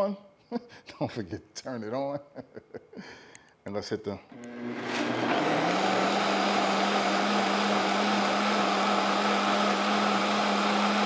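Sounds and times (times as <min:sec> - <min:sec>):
blender motor whining: 0:04.3 - 0:11.0.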